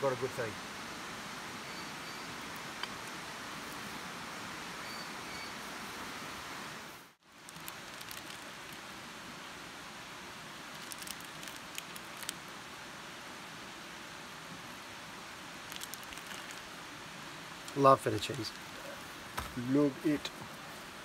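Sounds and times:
steady outdoor hiss: 0.0 - 21.0
plastic packet crinkling: 7.4 - 8.8, 10.7 - 12.4, 15.7 - 16.7.

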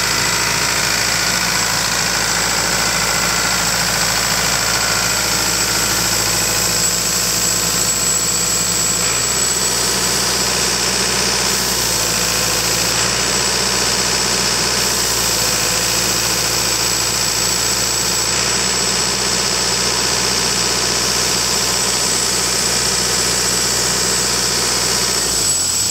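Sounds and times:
high-pitched whine: 0.0 - 14.0
diesel engine running: 0.0 - 25.9.

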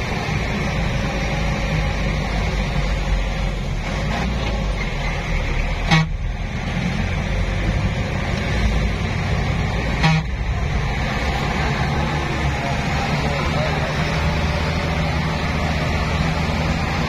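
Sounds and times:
engine low rumble: 0.0 - 17.0
car horn toots: 5.8 - 6.3, 9.9 - 10.5.

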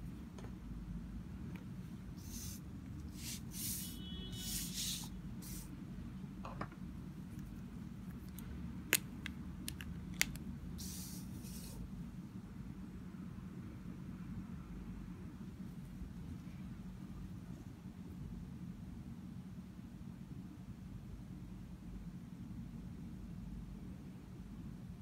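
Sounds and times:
steady low hum: 0.0 - 25.0
paper cards sliding on a table: 2.2 - 5.7, 10.8 - 11.8.

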